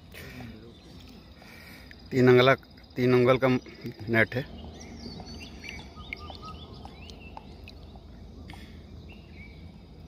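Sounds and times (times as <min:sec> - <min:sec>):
birds chirping: 0:00.0 - 0:10.0
steady low rumble: 0:04.3 - 0:10.0.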